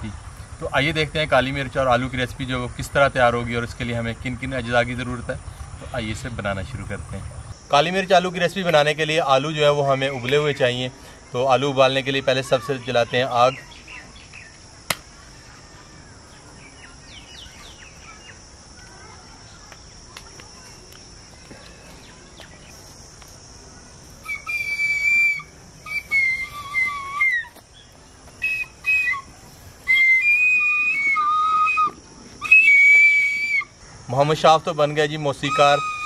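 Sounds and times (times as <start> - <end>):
faint insect drone: 0.0 - 36.0
flute shrill held notes: 24.2 - 27.6, 28.4 - 33.8, 35.4 - 36.0.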